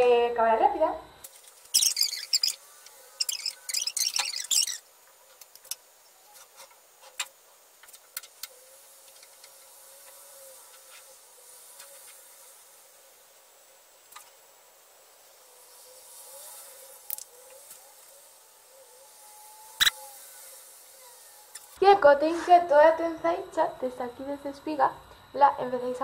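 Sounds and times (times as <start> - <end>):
low hiss: 0.0 - 26.0
crackling rustle of hair braiding: 1.2 - 18.3.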